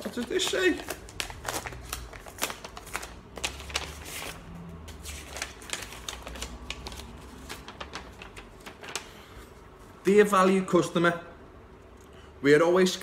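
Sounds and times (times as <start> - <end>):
paper crackling: 0.0 - 9.6.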